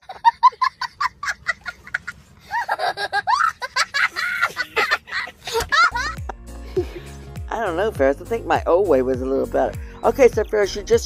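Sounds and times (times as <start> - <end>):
boy laughing hysterically: 0.0 - 7.1.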